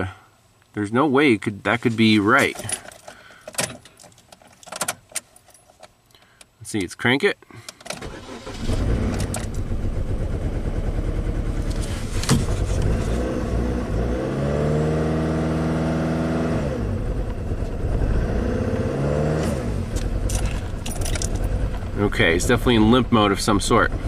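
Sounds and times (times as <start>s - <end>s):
car engine running rough: 8.4s - 24.0s.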